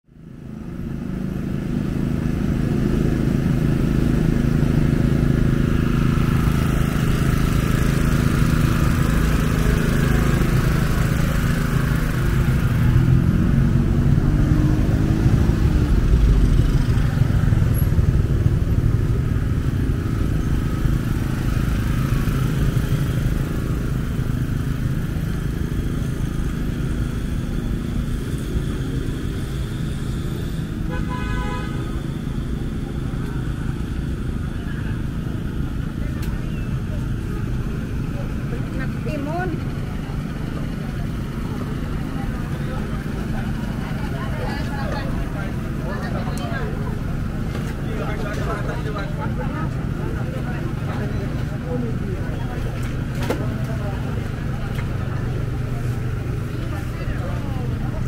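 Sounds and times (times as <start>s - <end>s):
cars and motorcycles passing: 0.2s - 58.0s
engine rising in pitch: 0.4s - 30.9s.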